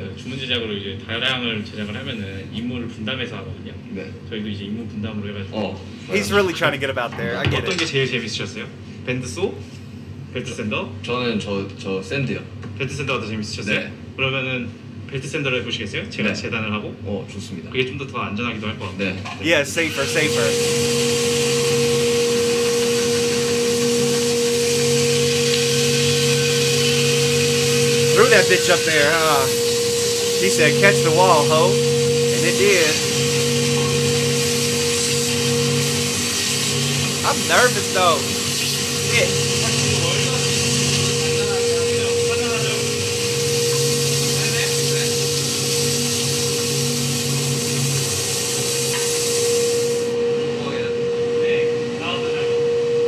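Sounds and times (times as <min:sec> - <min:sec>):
belt sander running: 0:22.6 - 0:39.2.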